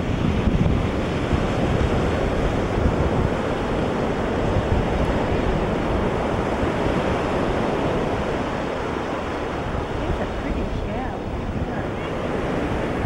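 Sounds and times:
ocean surf: 0.0 - 13.0
wind rumbling on microphone: 0.0 - 13.0.

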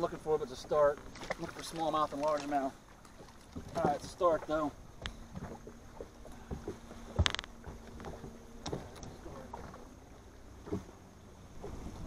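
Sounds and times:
faint steady hum: 0.0 - 12.0
knocks and clicks on boat deck: 3.2 - 9.8.

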